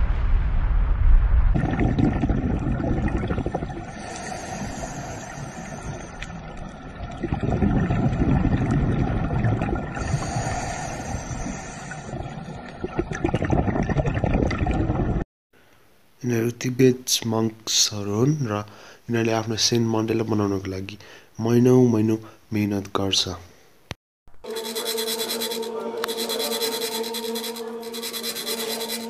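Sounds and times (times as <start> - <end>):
low wind rumble: 0.0 - 4.0
bubbles gurgling: 1.5 - 15.2
scuba diver breathing underwater: 1.6 - 15.0.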